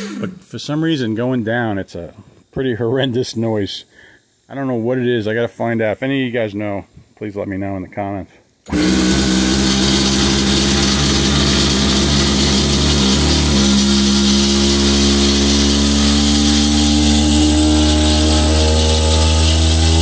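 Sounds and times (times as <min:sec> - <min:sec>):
hydraulic hiss: 0:08.5 - 0:20.0
hydraulic groaning whine: 0:08.7 - 0:20.0.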